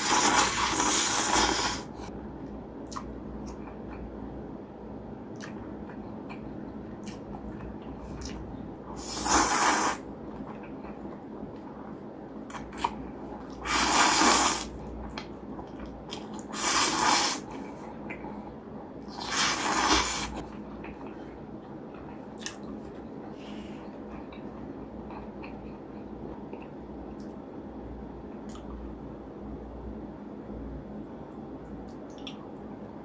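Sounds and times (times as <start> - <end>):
loud noodle slurping: 0.0 - 2.0, 9.0 - 10.0, 13.6 - 14.7, 16.5 - 17.5, 19.1 - 20.4
chewing and mouth clicks: 2.8 - 4.0, 5.3 - 8.5, 21.9 - 23.0.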